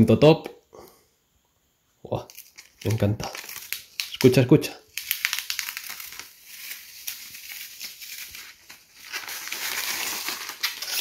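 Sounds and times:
plastic film peeling: 2.2s - 11.0s.

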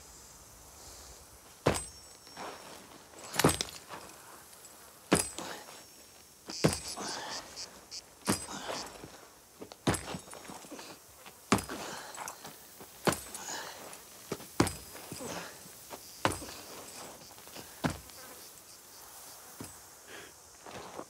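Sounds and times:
faint insect buzzing: 0.0s - 21.0s
heavy boot footsteps on stony ground: 1.5s - 7.1s, 8.2s - 18.4s.

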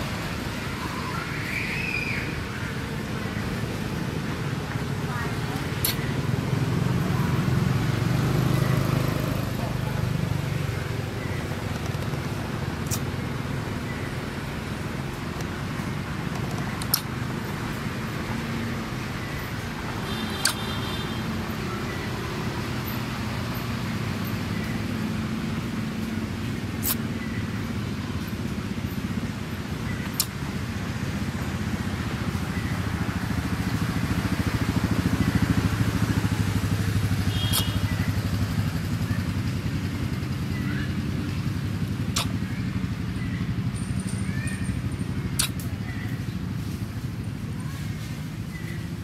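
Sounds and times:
sharp clicks: 11.6s - 13.1s, 16.3s - 17.1s, 20.4s - 20.7s, 42.1s - 42.4s, 45.4s - 45.7s.

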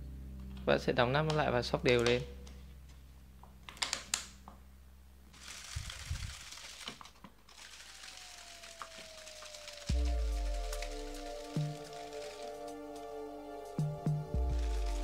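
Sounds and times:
plastic bottle crinkling when shaken: 5.4s - 12.8s.

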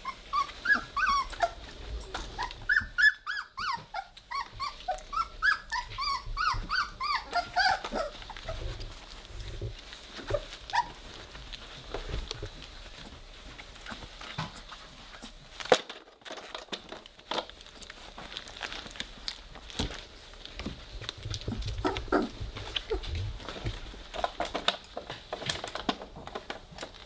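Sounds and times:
puppy squeaks: 0.0s - 8.7s, 10.2s - 11.1s
puppies scuffling on bedding: 0.0s - 27.0s.

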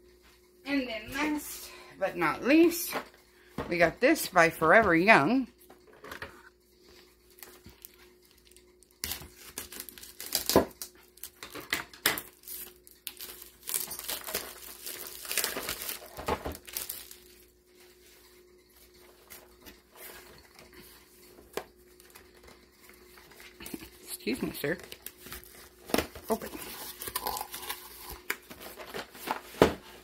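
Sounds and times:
plastic shrink-wrap tearing: 7.4s - 17.4s, 24.8s - 29.2s.

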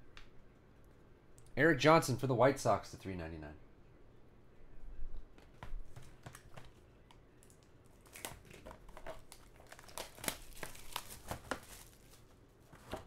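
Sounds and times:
plastic shrink wrap tearing: 7.4s - 12.4s.

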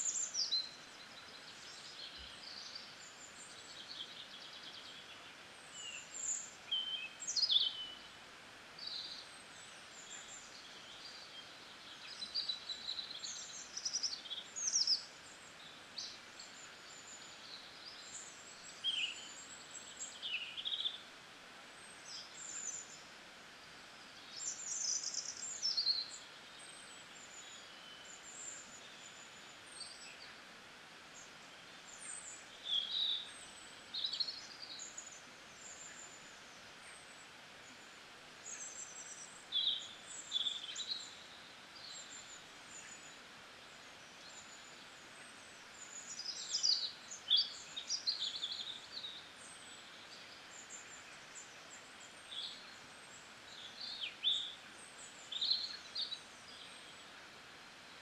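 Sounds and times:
faint steady hiss: 0.0s - 58.0s
small birds chirping: 0.0s - 58.0s.

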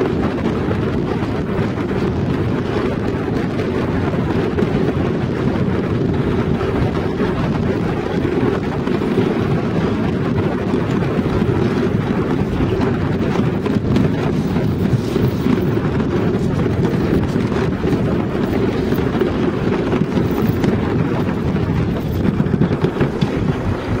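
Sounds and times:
sled rumbling down track: 0.0s - 24.0s
wind buffeting microphone: 0.0s - 24.0s.

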